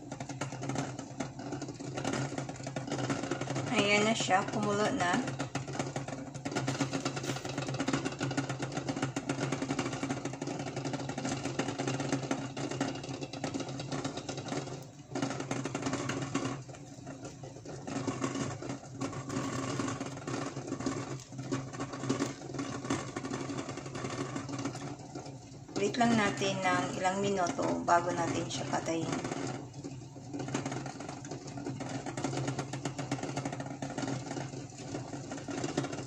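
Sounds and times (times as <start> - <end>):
water boiling in pot: 0.0 - 36.0.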